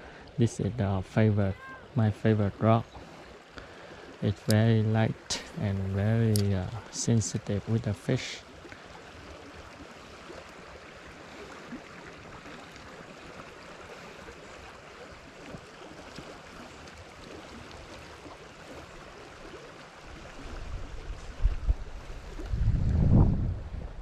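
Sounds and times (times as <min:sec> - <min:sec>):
wind buffeting microphone: 0:20.4 - 0:24.0.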